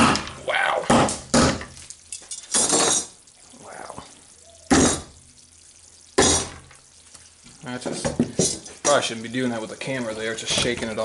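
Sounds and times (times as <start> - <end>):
hammer striking frozen candy: 0.9 - 1.7.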